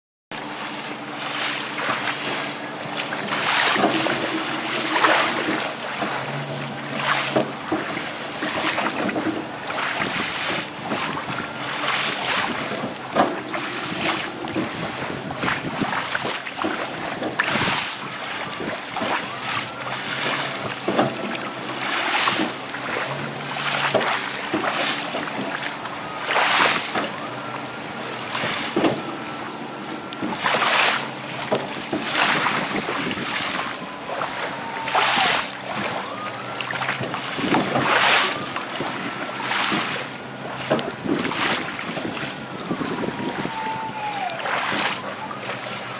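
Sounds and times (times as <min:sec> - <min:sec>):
small waves washing onto shore: 0:00.3 - 0:45.9
powered legs humming: 0:00.6 - 0:45.9
wind on microphone: 0:02.4 - 0:19.4, 0:31.8 - 0:36.1, 0:37.0 - 0:40.1, 0:40.7 - 0:45.6.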